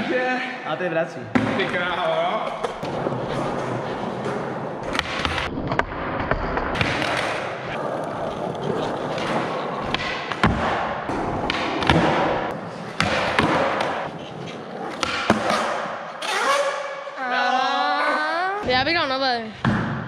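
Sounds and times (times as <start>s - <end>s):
skateboard wheels rolling on concrete: 1.7s - 15.9s
skateboard clacks and landings: 2.6s - 16.7s.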